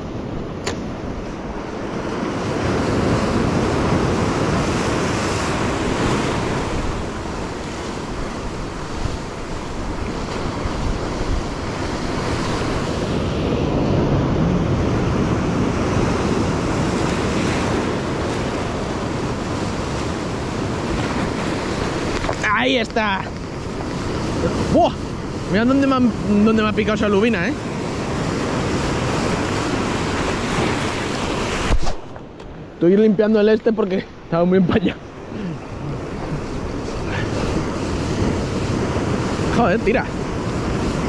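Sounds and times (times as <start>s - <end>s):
surf washing over rocks: 0.0s - 41.0s
wind buffeting microphone: 0.0s - 41.0s
sharp click: 0.6s - 0.9s.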